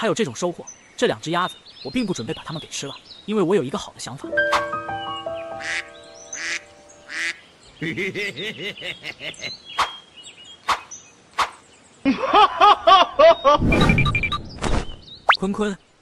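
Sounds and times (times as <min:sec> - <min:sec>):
cartoon ducks quacking: 0:05.6 - 0:09.5.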